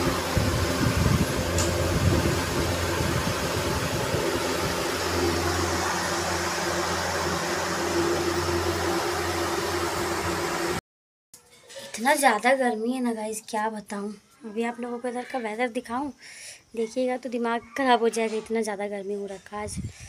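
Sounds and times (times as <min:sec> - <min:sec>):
electric fan whirring: 0:00.0 - 0:10.8.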